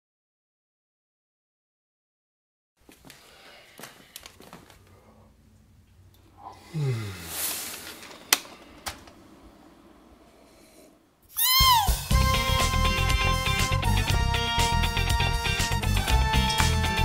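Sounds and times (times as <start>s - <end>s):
man yawning: 6.4s - 7.5s.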